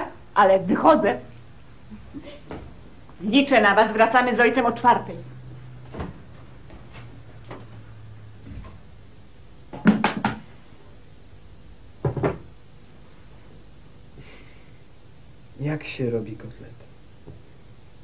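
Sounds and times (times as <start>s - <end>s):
door shutting thump: 12.0s - 12.5s.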